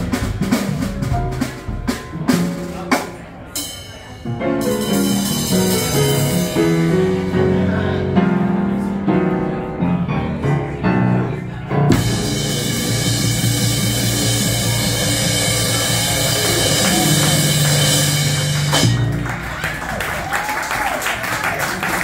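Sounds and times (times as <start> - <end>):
drum kit with cymbals: 0.0 - 8.4, 11.8 - 19.4
piano: 0.0 - 22.0
plucked double bass: 4.3 - 19.5.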